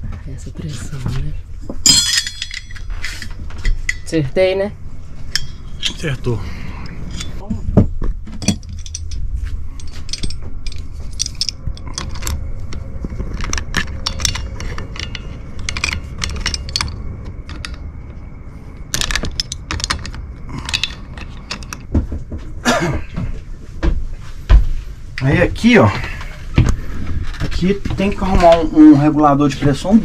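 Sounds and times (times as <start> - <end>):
metal tools clinking on fitting: 1.8 - 4.2, 5.3 - 6.1, 6.8 - 7.4, 8.4 - 9.2, 9.8 - 12.4, 13.4 - 17.8
tools rattling in toolbox: 8.3 - 12.5, 13.1 - 17.9, 19.0 - 21.9.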